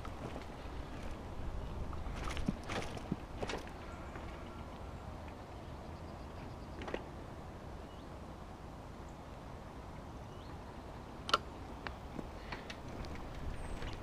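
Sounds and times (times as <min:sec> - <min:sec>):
bicycle tyres rumbling: 0:00.0 - 0:05.1, 0:12.0 - 0:14.0
bike clicks and rattles: 0:00.0 - 0:05.4, 0:06.7 - 0:07.2, 0:11.3 - 0:14.0.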